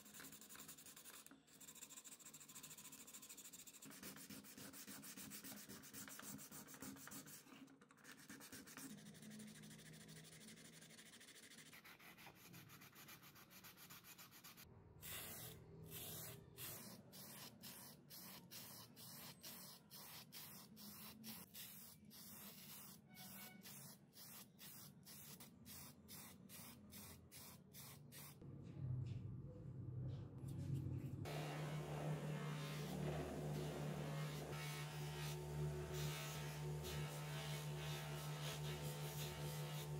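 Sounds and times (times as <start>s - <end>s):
buffing wheel motor hum: 31.3s - 39.9s
sandpaper rubbing plastic: 31.3s - 39.9s.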